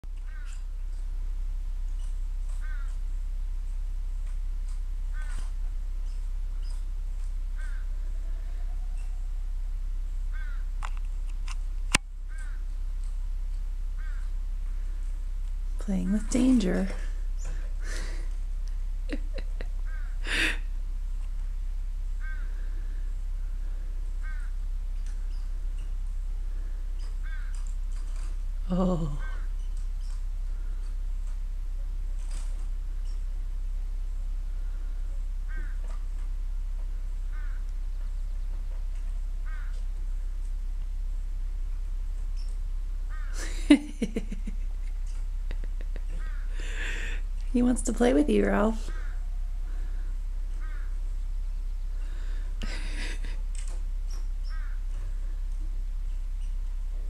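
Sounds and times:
squirrel barking: 2.0 - 3.0, 10.3 - 10.7, 12.3 - 12.7, 27.0 - 30.8, 35.5 - 35.9, 37.3 - 37.7, 54.1 - 54.9.

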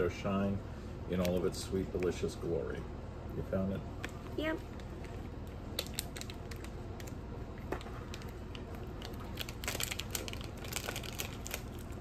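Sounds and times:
plastic snack packet crinkling: 4.6 - 12.0.

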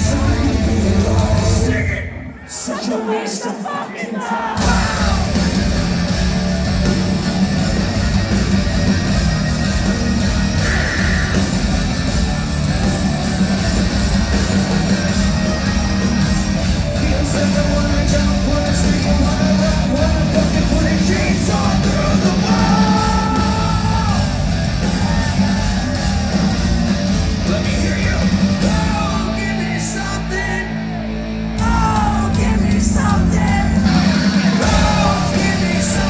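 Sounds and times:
bass: 0.0 - 2.4, 4.6 - 36.0
distorted electric guitars: 0.0 - 2.7, 4.6 - 36.0
man singing and shouting: 0.0 - 5.5, 16.9 - 24.4, 27.3 - 31.0, 31.6 - 36.0
drums: 0.0 - 36.0.

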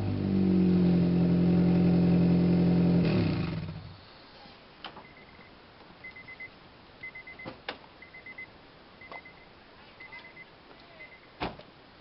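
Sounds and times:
faint electronic beeping: 5.0 - 11.4.

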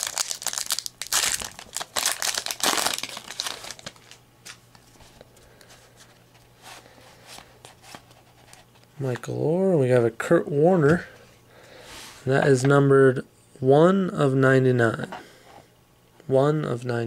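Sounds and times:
wrapper tearing and crinkling: 0.0 - 4.6.

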